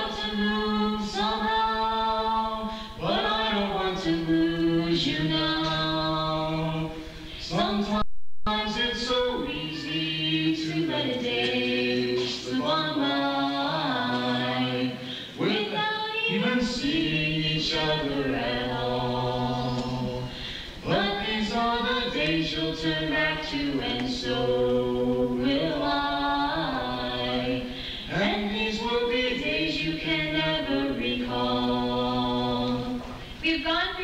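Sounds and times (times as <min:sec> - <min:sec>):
woman singing: 0:00.0 - 0:06.6, 0:07.4 - 0:18.9, 0:20.8 - 0:34.0
man singing: 0:07.5 - 0:13.3.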